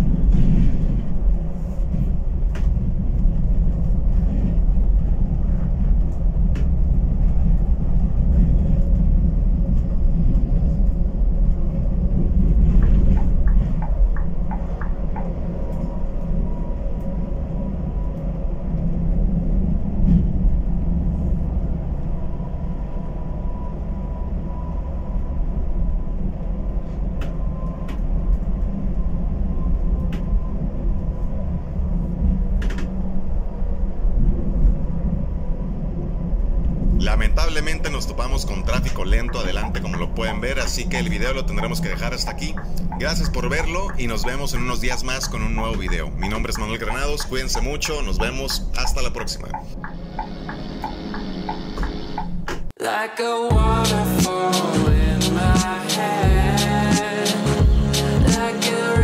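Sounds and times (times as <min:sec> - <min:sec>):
road noise: 0:31.5 - 0:52.8
diesel engine drone: 0:36.9 - 0:52.8, 0:53.5 - 0:59.0.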